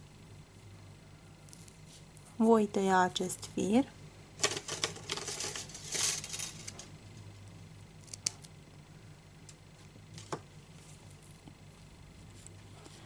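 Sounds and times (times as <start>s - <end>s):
low steady hum: 0.0s - 13.0s
thread rustling: 4.4s - 6.9s.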